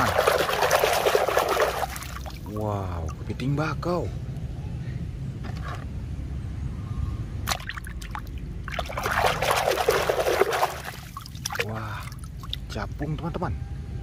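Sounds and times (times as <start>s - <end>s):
toy splashing in water: 0.0s - 2.5s, 7.5s - 12.6s.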